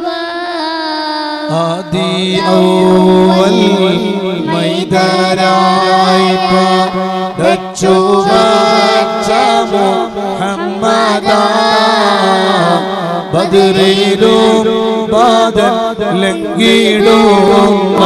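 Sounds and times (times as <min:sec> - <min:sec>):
boy singing into a microphone: 0:00.0 - 0:18.0.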